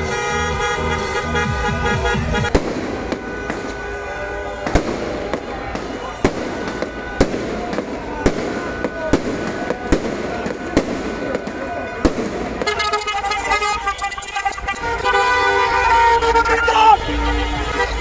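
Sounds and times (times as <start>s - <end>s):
fireworks bangs: 1.9s - 16.6s
fireworks crackling: 2.4s - 18.0s
music: 16.8s - 18.0s.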